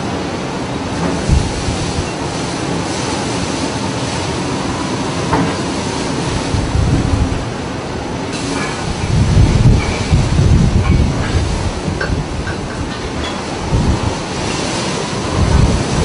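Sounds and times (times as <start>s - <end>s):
waves breaking: 0.0s - 16.0s
wind buffeting microphone: 1.0s - 2.4s, 4.5s - 16.0s
wind rushing: 1.2s - 2.1s, 6.0s - 16.0s.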